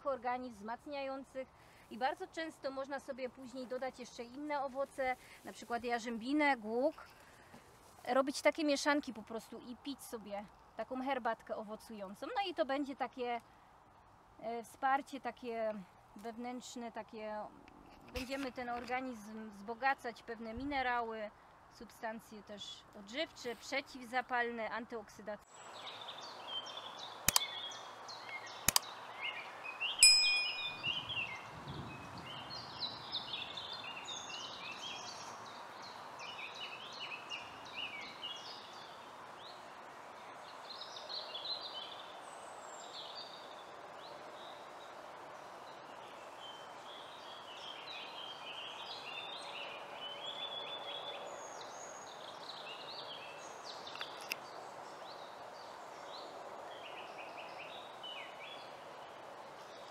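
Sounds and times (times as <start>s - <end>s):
steady outdoor hiss: 0.0s - 59.9s
small birds chirping: 22.0s - 59.9s
mouse clicks: 27.3s - 27.5s
bell ding: 30.0s - 30.9s.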